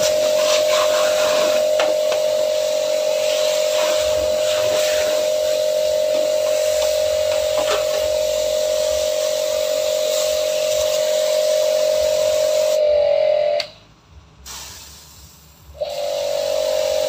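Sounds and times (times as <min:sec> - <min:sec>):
pressure washer motor humming: 0:00.0 - 0:12.8, 0:15.8 - 0:17.0
water jet hissing: 0:00.0 - 0:12.8, 0:14.4 - 0:17.0.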